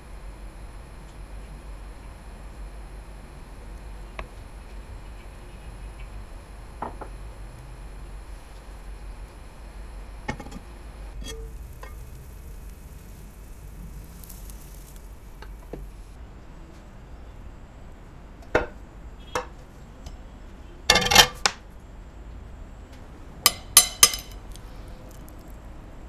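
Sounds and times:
faint sizzle: 0.0s - 26.0s
pan and spatula clinking on plate: 23.5s - 24.4s.

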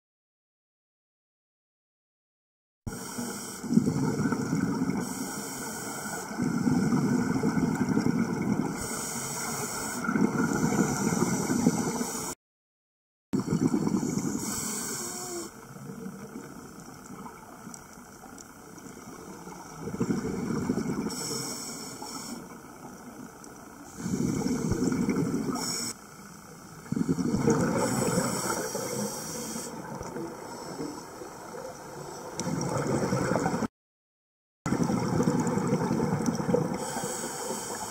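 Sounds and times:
underwater bubbles gurgling: 2.9s - 12.4s, 13.4s - 33.7s, 34.7s - 37.9s
steady hiss: 5.0s - 6.6s, 8.8s - 12.4s, 14.1s - 15.8s, 21.1s - 24.9s, 27.9s - 32.2s, 36.8s - 37.9s.

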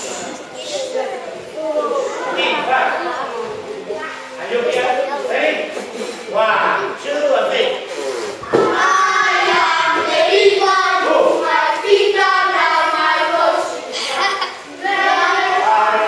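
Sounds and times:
children singing in unison: 8.6s - 16.0s.

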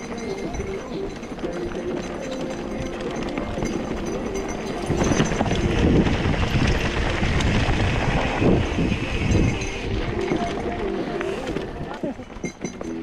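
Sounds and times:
bike tyres rolling on rocky trail: 0.0s - 13.0s
wind buffeting microphone: 2.8s - 10.8s.

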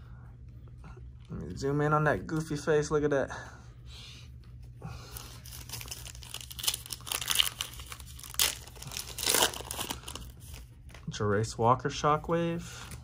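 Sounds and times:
foil pack tearing and crinkling: 5.4s - 10.3s.

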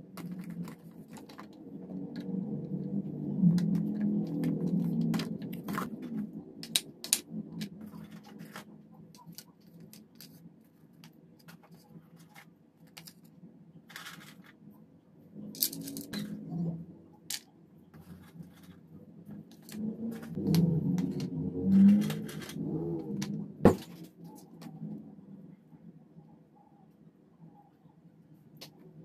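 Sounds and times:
food set on wooden board: 19.5s - 24.1s.

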